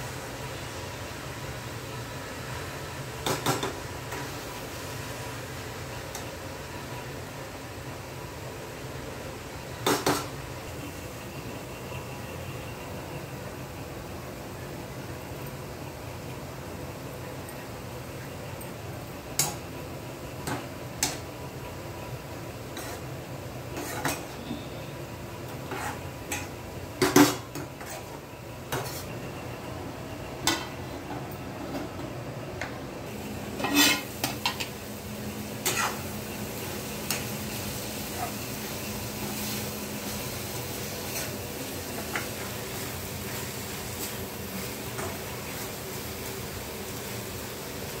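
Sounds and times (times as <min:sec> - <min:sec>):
metal spatula scraping a pan: 0:22.7 - 0:23.1, 0:23.7 - 0:24.7, 0:25.6 - 0:29.2, 0:33.6 - 0:34.6, 0:35.6 - 0:36.0, 0:41.0 - 0:41.4.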